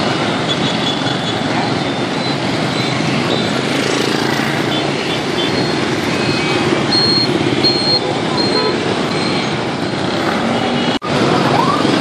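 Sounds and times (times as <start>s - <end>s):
motorbikes and cars passing: 0.0s - 12.0s
short high beeps: 5.6s - 10.2s.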